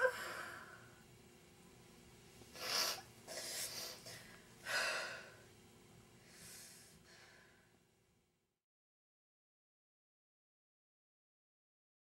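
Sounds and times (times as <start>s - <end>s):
woman crying: 0.0s - 0.4s.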